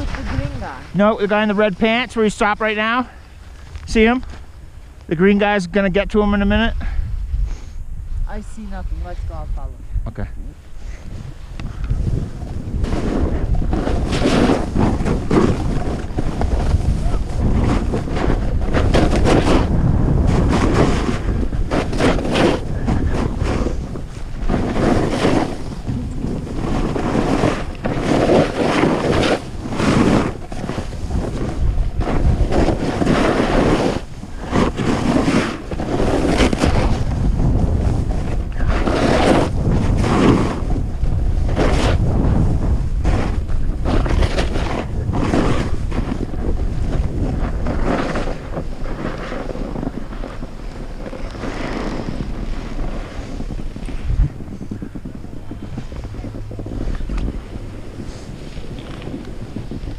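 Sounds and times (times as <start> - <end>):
skis scraping on snow: 0.0 - 6.7, 10.7 - 59.9
wind buffeting microphone: 0.0 - 59.9.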